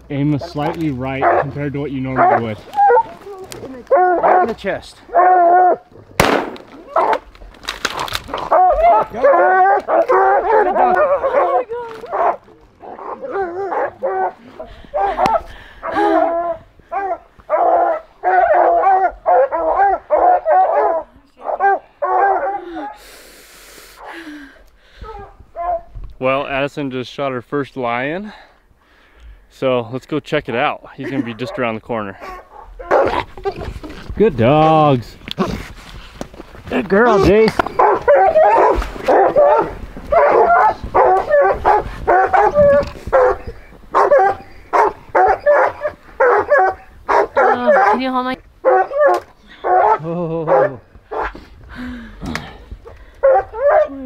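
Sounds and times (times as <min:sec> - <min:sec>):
hounds baying: 0:00.5 - 0:06.1, 0:06.9 - 0:07.3, 0:08.2 - 0:23.0, 0:25.0 - 0:25.9, 0:31.0 - 0:33.7, 0:36.9 - 0:51.5, 0:52.8 - 0:54.0.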